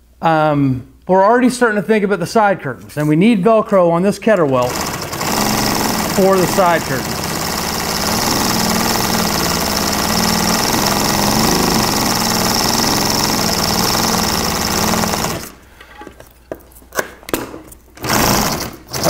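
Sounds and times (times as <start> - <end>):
industrial sewing machine running: 4.4 - 15.6, 18.0 - 19.0.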